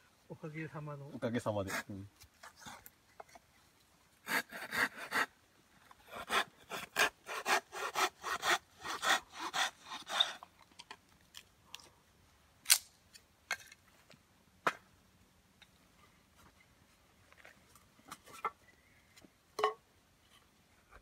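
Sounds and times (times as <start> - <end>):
knife scraping wood: 6.0 - 10.4.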